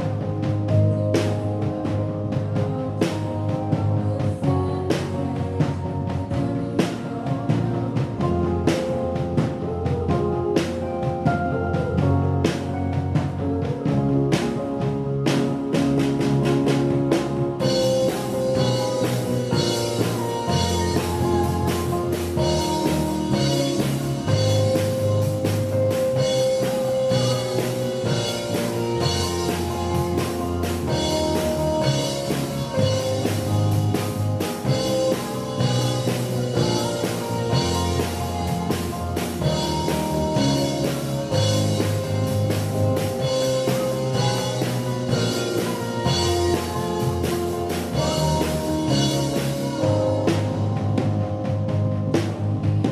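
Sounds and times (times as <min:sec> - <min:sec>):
drum kit: 0:00.0 - 0:52.9
electric bass guitar: 0:00.0 - 0:52.9
keyboard held notes: 0:00.0 - 0:52.9
cymbals: 0:17.6 - 0:50.9.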